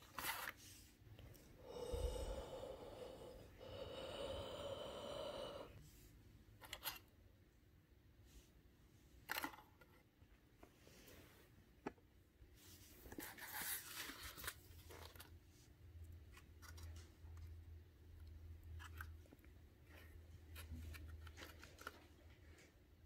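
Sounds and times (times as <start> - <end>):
fingers handling puzzle pieces: 0.0 - 1.5, 6.6 - 7.1, 9.2 - 10.7, 18.2 - 22.7.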